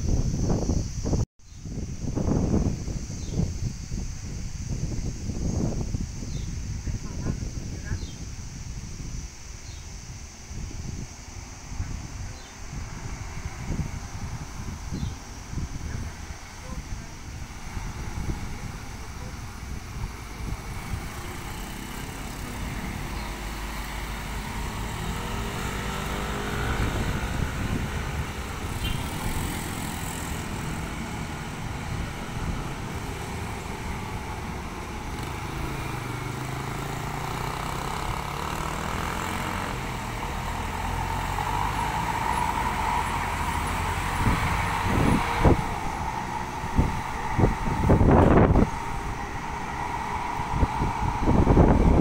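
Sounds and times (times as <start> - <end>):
wind buffeting microphone: 0.0 - 52.0
vehicles passing: 10.0 - 52.0
truck diesel engine: 12.6 - 52.0.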